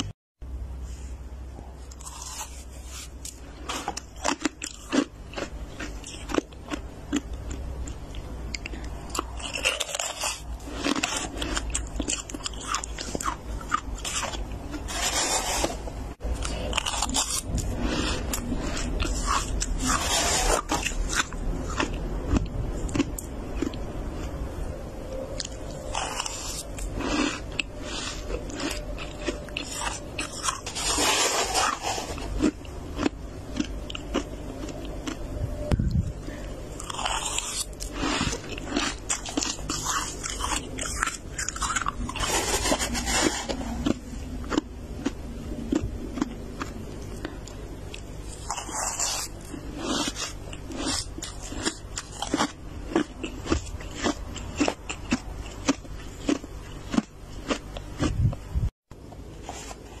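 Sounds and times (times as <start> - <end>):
frost crunching: 1.8 - 24.4, 25.3 - 35.3, 36.3 - 58.2
scraping through frost: 14.9 - 15.8, 19.2 - 21.0, 30.6 - 32.3, 42.1 - 43.8.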